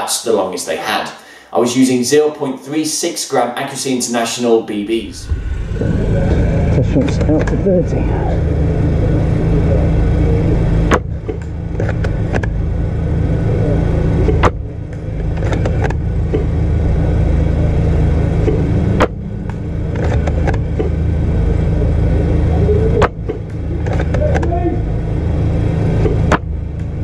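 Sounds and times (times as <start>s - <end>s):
low rumble: 4.8s - 27.0s.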